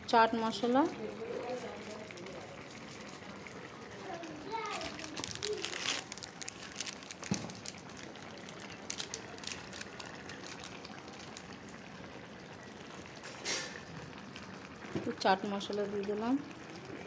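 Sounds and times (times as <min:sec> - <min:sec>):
curry bubbling and popping: 0:00.0 - 0:17.0.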